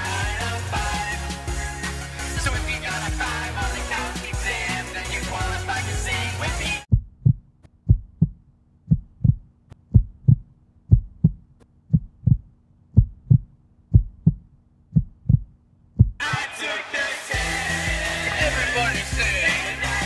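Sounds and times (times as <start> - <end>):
music: 0.0 - 6.9, 16.3 - 20.0
heartbeat thumps: 6.9 - 16.4.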